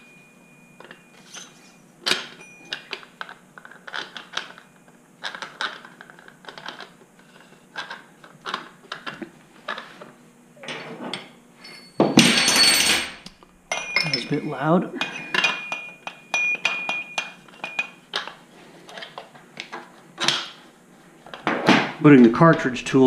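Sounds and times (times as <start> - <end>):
metal parts clinking: 10.6 - 18.3.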